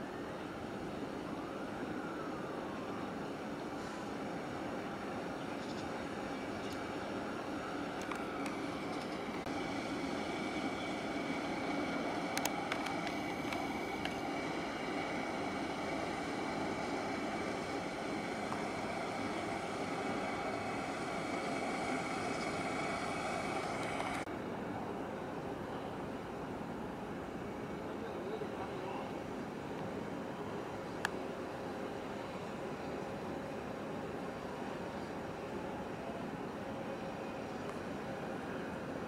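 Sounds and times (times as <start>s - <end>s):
ferry engine drone: 0.0s - 39.0s.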